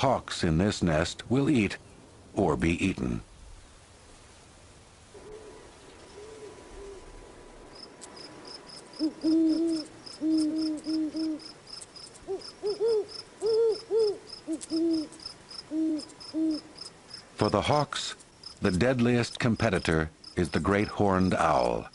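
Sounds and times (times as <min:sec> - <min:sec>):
owl hooting: 0:05.2 - 0:07.2, 0:08.9 - 0:11.6, 0:12.2 - 0:17.2
crickets chirping: 0:07.6 - 0:21.9.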